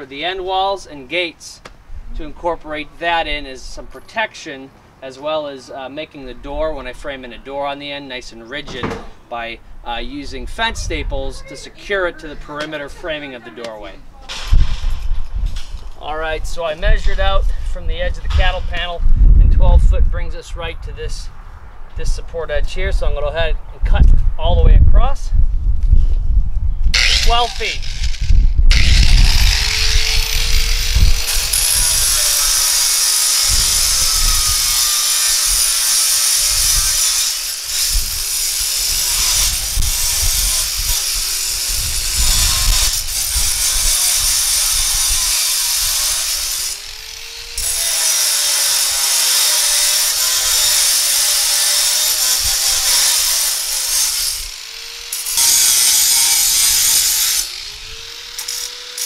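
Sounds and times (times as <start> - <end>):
angle grinder cutting steel: 26.9 - 59.0.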